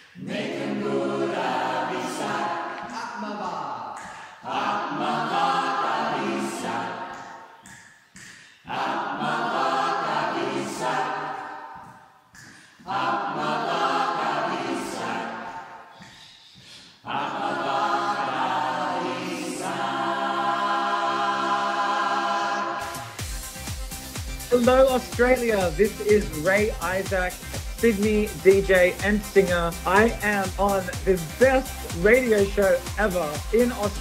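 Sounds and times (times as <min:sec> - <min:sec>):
a cappella choir singing: 0:00.0 - 0:24.2.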